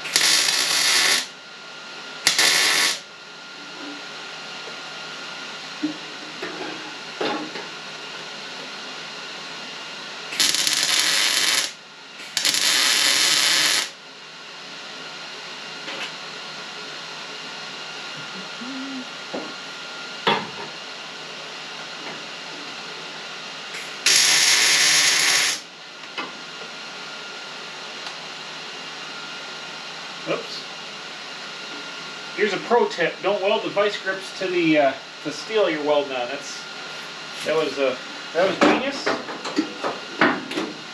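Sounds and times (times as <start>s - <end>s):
welder buzzing: 0.0s - 1.4s, 2.2s - 3.1s, 10.3s - 14.0s, 23.7s - 25.7s.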